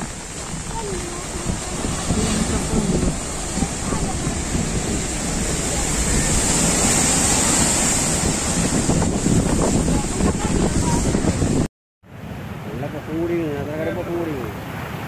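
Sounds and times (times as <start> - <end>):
wind rumbling on microphone: 0.0 - 11.7
storm surf breaking over seawall: 0.0 - 15.0.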